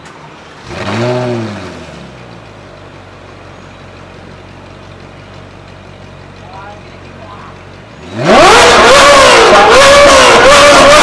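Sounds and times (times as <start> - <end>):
car engine idling: 0.0 - 11.0
sports car engine revving: 0.5 - 2.9, 7.8 - 11.0.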